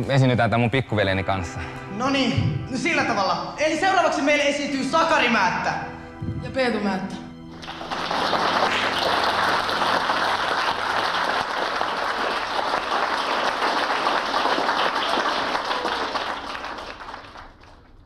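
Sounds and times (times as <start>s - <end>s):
audience applauding: 7.5s - 18.0s.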